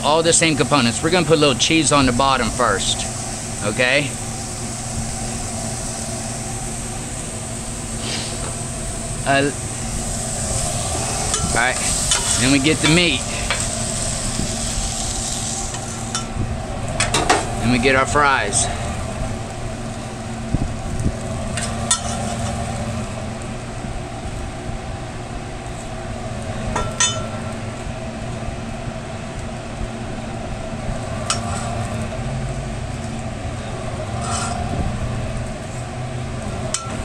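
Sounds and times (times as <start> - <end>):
low mechanical hum: 0.0 - 37.0
metal scraper on griddle: 10.5 - 16.3, 21.5 - 22.6, 34.2 - 34.7.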